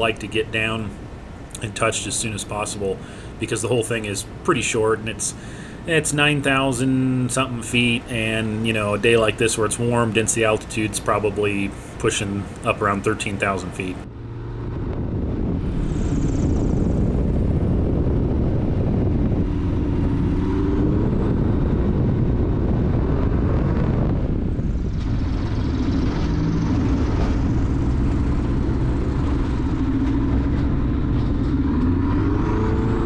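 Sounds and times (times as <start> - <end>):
aircraft engine and propeller drone: 0.0 - 33.0
wind: 0.0 - 33.0.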